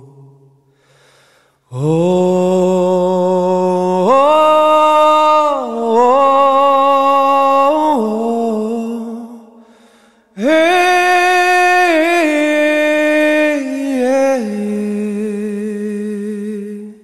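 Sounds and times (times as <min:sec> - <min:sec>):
slow chant-like singing: 0:00.0 - 0:17.0.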